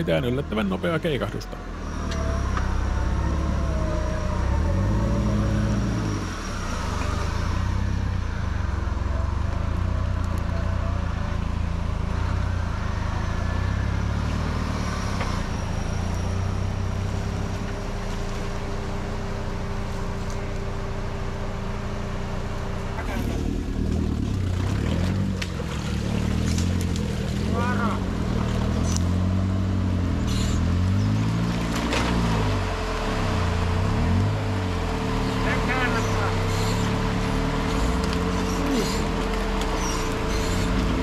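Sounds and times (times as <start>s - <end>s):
off-road vehicle engine revving: 0.0s - 41.0s
vehicle driving through water: 23.0s - 41.0s.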